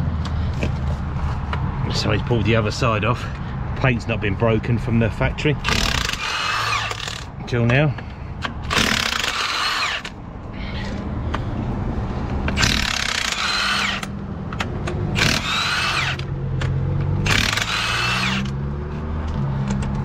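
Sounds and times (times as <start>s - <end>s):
engine humming: 0.0s - 20.0s
power tool whining: 5.6s - 7.3s, 8.6s - 10.2s, 12.5s - 14.2s, 15.1s - 16.3s, 17.2s - 18.6s.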